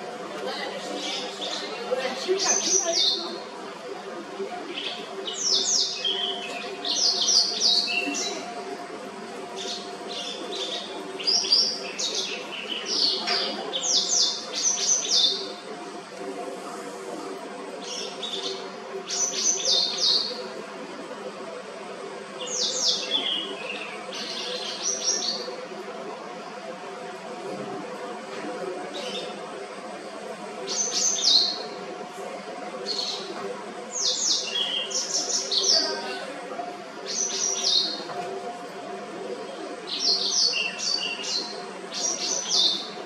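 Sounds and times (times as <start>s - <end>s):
faint steady hum: 0.0s - 43.0s
bird chirps and trills: 4.7s - 8.6s, 9.5s - 15.7s, 17.8s - 20.5s, 22.4s - 25.6s, 30.6s - 31.8s, 32.8s - 33.3s, 33.9s - 36.3s, 37.0s - 38.0s, 39.5s - 43.0s.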